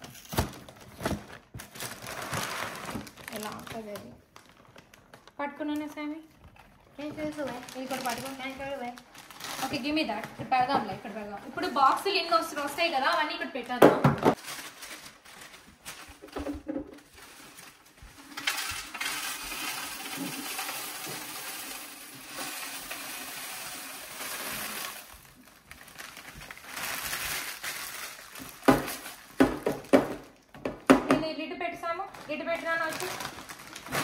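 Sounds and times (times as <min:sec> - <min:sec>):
cereal pouring into canister: 0:18.2 - 0:25.9.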